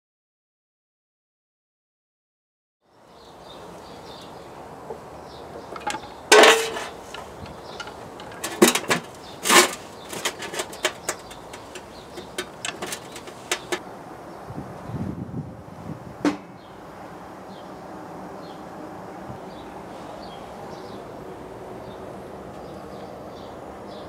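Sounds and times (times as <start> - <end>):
metal clank ringing: 5.7 - 13.8
metal clattering in a tray: 5.7 - 13.8.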